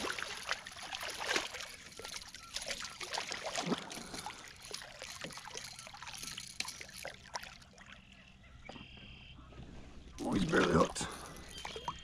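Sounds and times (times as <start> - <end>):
fish splashing at water surface: 0.0 - 7.8.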